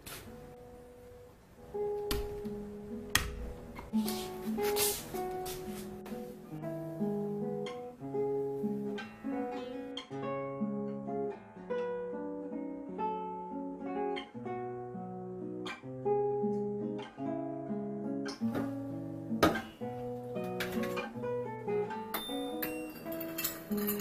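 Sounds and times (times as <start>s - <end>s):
classical guitar playing: 0.0s - 24.0s.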